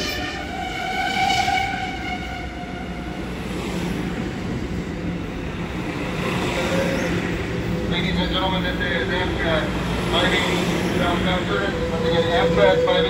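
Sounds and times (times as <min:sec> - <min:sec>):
sustained high tone: 0:00.0 - 0:03.3.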